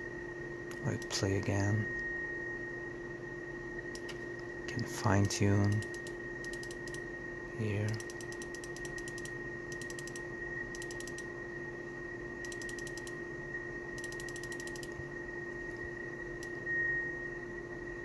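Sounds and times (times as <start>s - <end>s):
faint steady tones: 0.0s - 18.0s
mouse wheel clicking: 4.0s - 4.2s, 5.2s - 7.0s, 7.8s - 10.2s, 10.8s - 11.3s, 12.4s - 13.2s, 14.0s - 15.0s.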